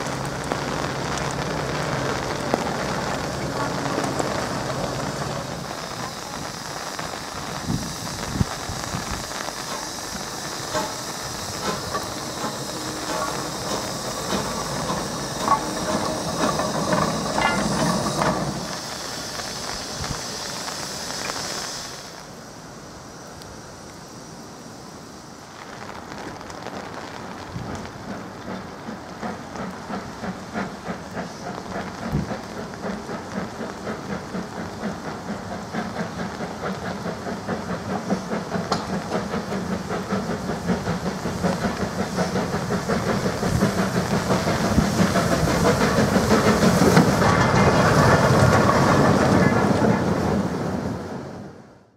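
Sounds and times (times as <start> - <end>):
steam locomotive chuffing: 0.0 - 22.4, 27.6 - 51.9
steam hissing loudly: 0.0 - 51.9
metal clanks: 11.6 - 18.7.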